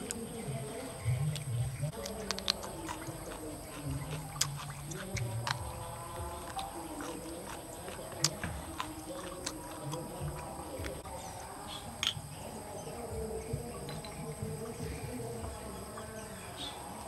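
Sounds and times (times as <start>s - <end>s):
insects chirring: 0.0s - 17.0s
glass bottle clicks and taps: 12.0s - 12.2s.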